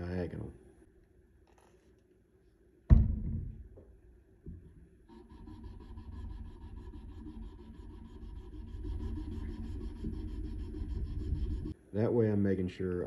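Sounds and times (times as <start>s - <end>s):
thump: 2.9s - 3.6s
sandpaper scratching on knife blade: 5.1s - 11.8s.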